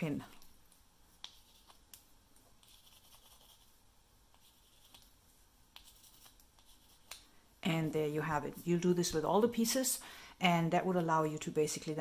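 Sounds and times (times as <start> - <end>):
wooden clothespin rubbing foil: 2.6 - 5.1.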